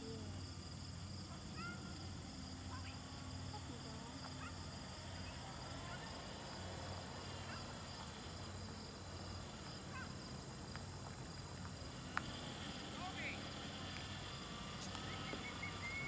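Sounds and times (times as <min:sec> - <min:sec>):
insects droning: 0:00.0 - 0:16.0
bird chirps: 0:14.9 - 0:16.0.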